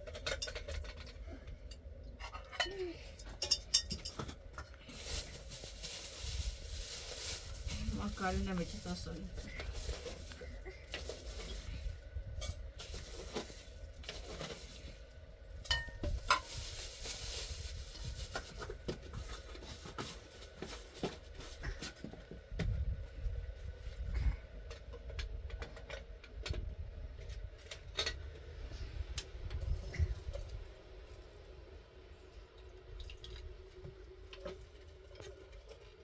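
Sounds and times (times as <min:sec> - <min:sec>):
clinks and knocks of objects handled: 0:00.0 - 0:06.4
steady low rumble: 0:00.0 - 0:19.8, 0:21.4 - 0:36.0.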